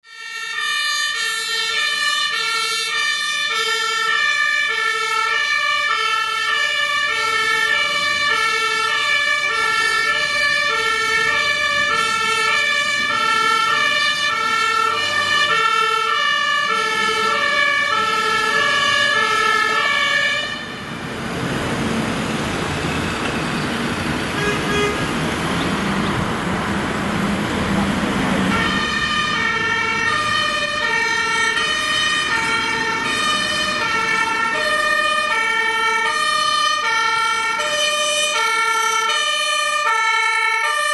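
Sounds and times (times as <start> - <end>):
two-tone fire engine siren: 0.0 - 40.9.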